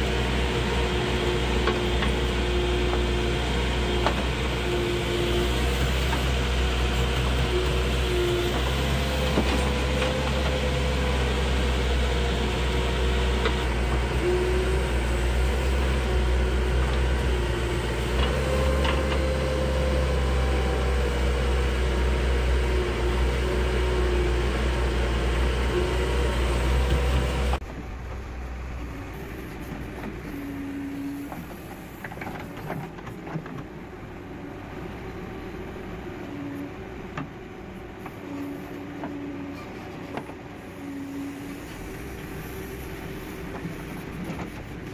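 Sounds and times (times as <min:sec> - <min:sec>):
backhoe diesel engine digging: 0:00.0 - 0:44.9
high whine of hydraulic arm: 0:34.5 - 0:44.8.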